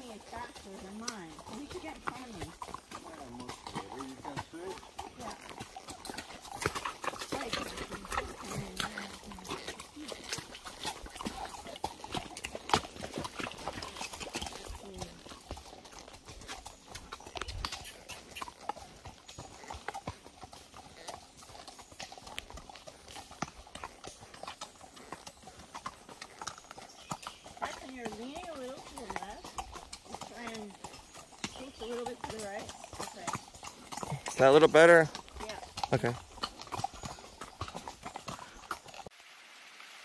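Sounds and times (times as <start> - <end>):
horse hooves clopping on hard ground: 0.0 - 39.6.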